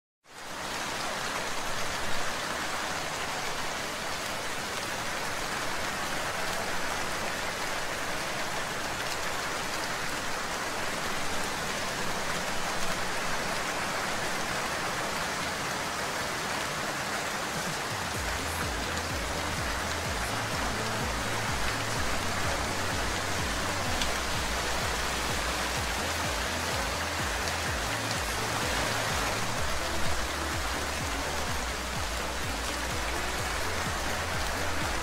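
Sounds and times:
steady rain falling: 0:00.2 - 0:35.0.

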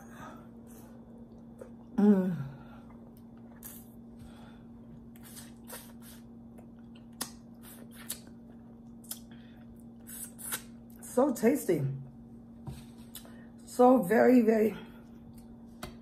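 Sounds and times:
steady low hum: 0:00.0 - 0:16.0
person humming mmm: 0:01.8 - 0:02.7
wet chewing and lip smacks: 0:05.0 - 0:11.0.

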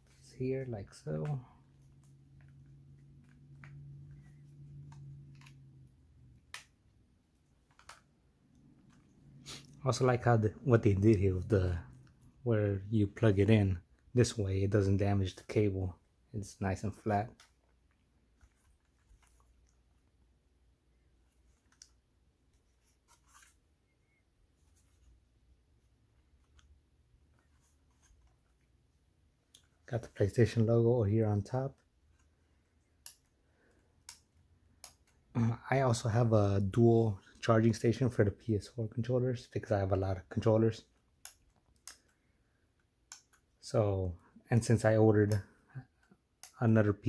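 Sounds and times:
faint plastic clicks: 0:31.7 - 0:35.3, 0:40.9 - 0:43.6.

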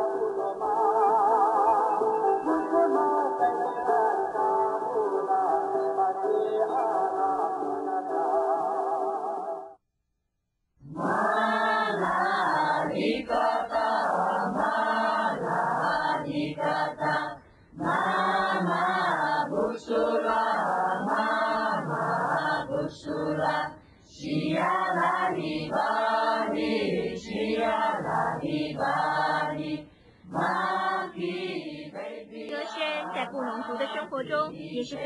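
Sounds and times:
group of voices chanting: 0:10.9 - 0:35.0.

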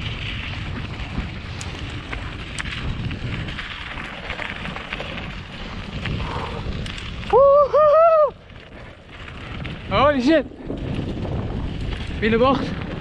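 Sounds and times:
bike tyres rumbling on dirt: 0:00.0 - 0:13.0
wind rushing over microphone: 0:00.0 - 0:13.0
person whooping: 0:07.2 - 0:08.4.

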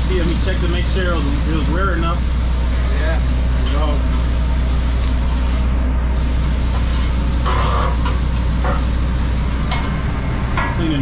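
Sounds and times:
low mechanical hum: 0:00.0 - 0:11.0
spatula scraping griddle: 0:05.4 - 0:08.8.

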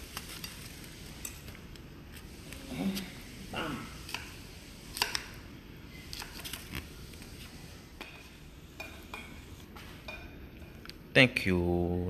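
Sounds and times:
utensils clinking on plates: 0:00.0 - 0:01.6, 0:08.0 - 0:10.9.

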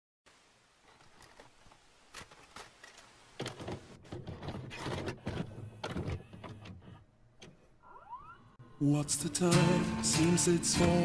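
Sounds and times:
tape hiss: 0:00.3 - 0:03.6.

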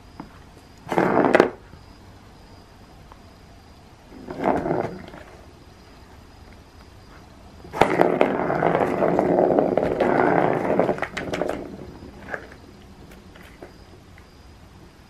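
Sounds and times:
plastic ball rolling in track: 0:00.8 - 0:01.6, 0:04.2 - 0:05.4, 0:07.7 - 0:13.7.

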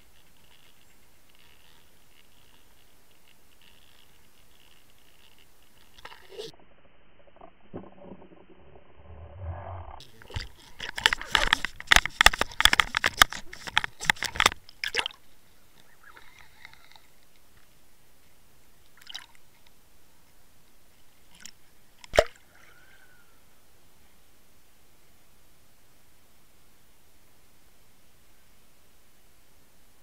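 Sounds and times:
water noise: 0:03.6 - 0:17.8
sharp knocks and clicks underwater: 0:10.2 - 0:15.2.

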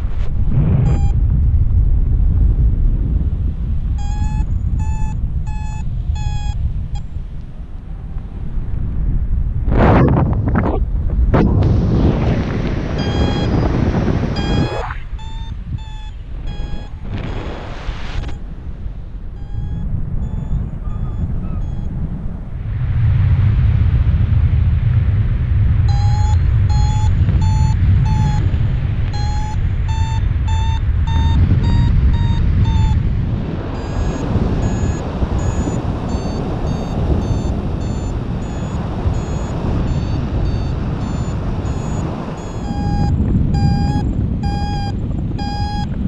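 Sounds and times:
wind rumble on microphone: 0:00.0 - 0:46.0
variometer beeping: 0:00.8 - 0:01.2, 0:03.9 - 0:07.2, 0:13.0 - 0:17.4, 0:18.2 - 0:18.5, 0:19.3 - 0:22.1, 0:25.8 - 0:46.0.

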